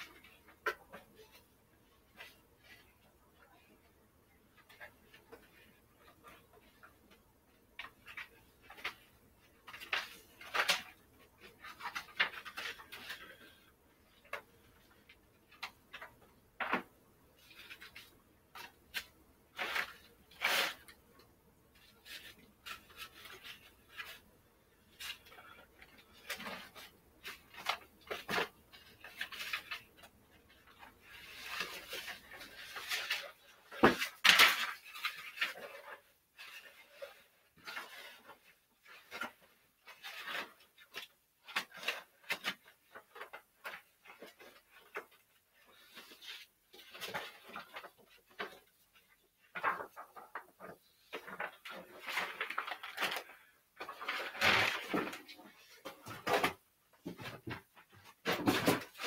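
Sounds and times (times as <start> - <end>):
papers rustling: 4.5 - 59.0.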